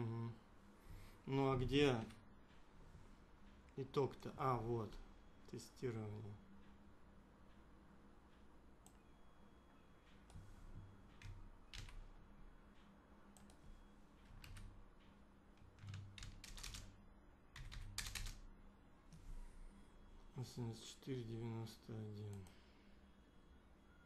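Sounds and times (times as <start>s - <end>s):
keyboard keys clicking: 11.1s - 12.0s, 15.6s - 16.9s, 17.6s - 18.4s.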